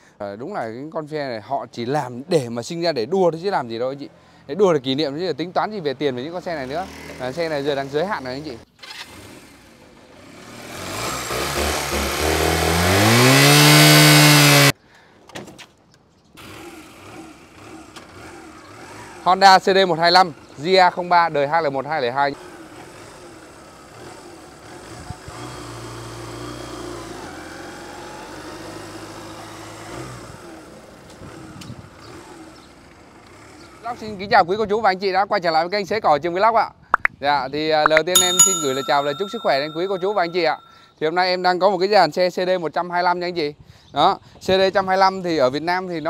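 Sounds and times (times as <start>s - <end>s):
motorcycle engine revving: 9.1s - 14.7s.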